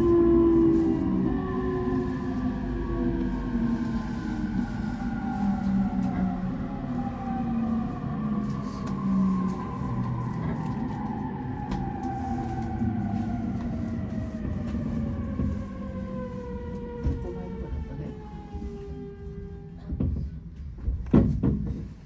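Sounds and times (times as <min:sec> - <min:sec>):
wheels rumbling on rails: 0:00.0 - 0:22.0
knock: 0:20.9 - 0:21.9.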